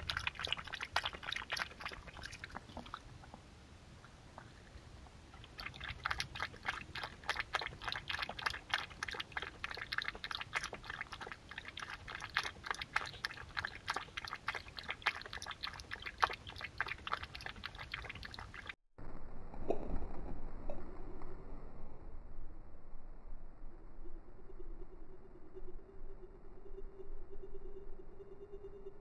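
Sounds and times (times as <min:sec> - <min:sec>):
fox lapping water: 0:00.0 - 0:03.4, 0:04.0 - 0:18.8.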